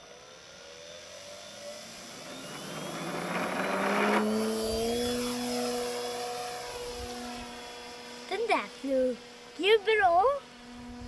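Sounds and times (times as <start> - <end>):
rushing noise of passing plane: 0.0 - 9.6
model plane motor throttling up: 0.0 - 11.0.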